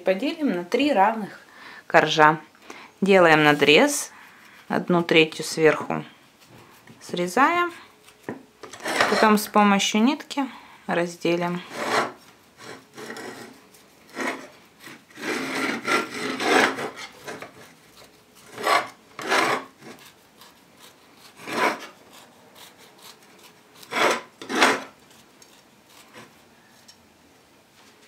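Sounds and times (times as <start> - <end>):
knife sawing into cake: 8.7 - 9.4, 11.6 - 26.4.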